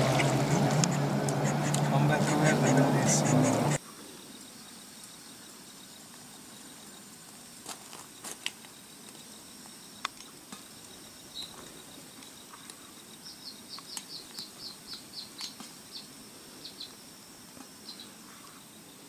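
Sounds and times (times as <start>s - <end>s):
insect trilling: 0.0s - 19.0s.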